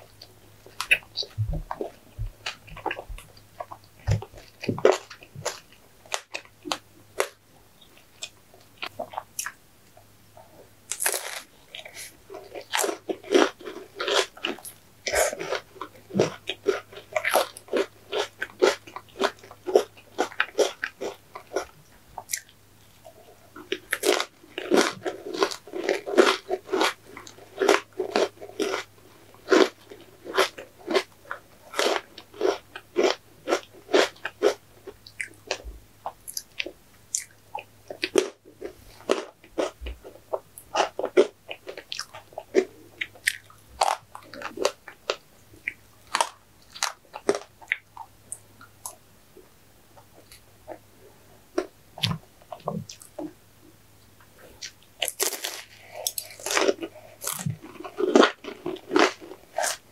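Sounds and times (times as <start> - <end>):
person crunching wafer: 10.9 - 22.5, 23.6 - 47.9, 54.6 - 59.9.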